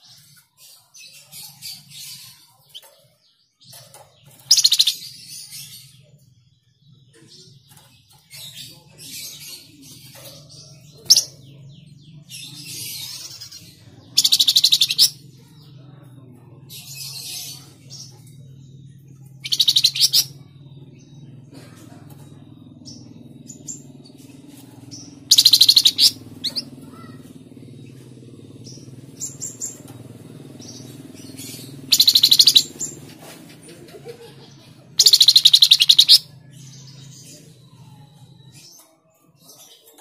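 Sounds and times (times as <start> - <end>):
soft bird chirps: 0.0 - 16.0, 16.7 - 40.0
songbird fast trills: 25.2 - 27.2, 30.4 - 33.0, 35.0 - 36.3.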